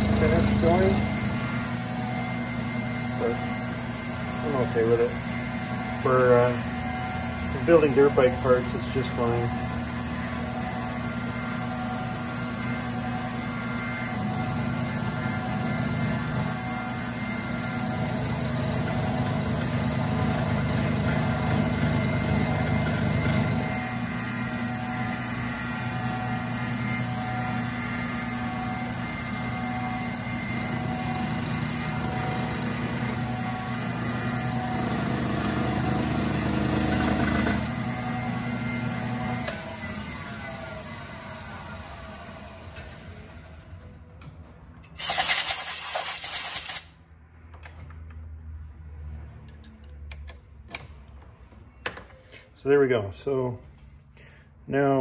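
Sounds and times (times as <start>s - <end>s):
milling machine cutting metal: 0.0s - 43.6s.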